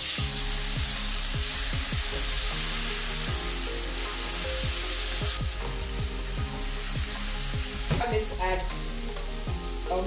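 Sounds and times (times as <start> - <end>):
tomatoes sizzling in oil: 0.0 - 10.0.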